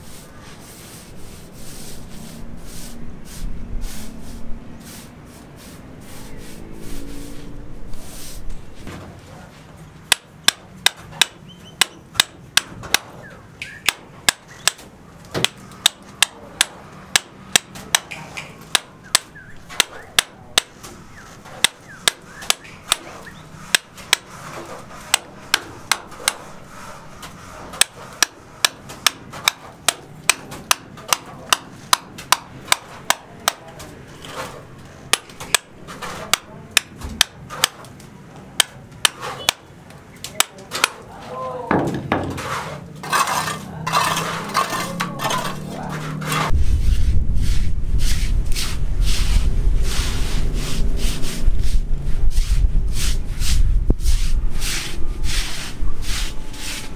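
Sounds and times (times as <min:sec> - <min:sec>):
hammer chipping concrete: 0:10.1 - 0:26.6, 0:27.2 - 0:37.9, 0:38.5 - 0:41.1, 0:41.7 - 0:46.5.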